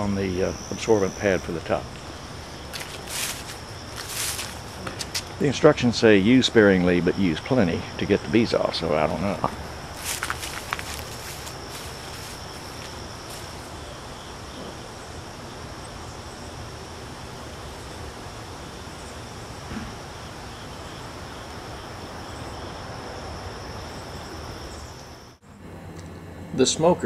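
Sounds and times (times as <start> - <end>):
insect trilling: 0.0 - 22.8
outdoor background noise: 0.0 - 27.0.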